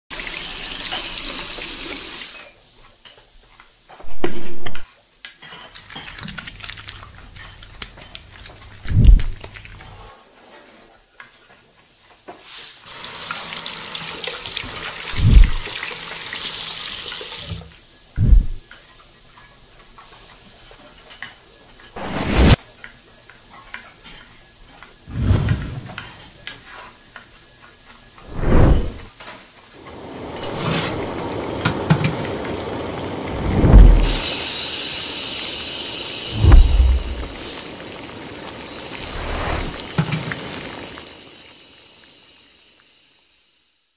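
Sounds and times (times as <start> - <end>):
short deep thumps: 15.2 - 15.6, 18.2 - 18.6, 33.4 - 34.2, 36.4 - 37.4
long hissing: 33.2 - 43.9.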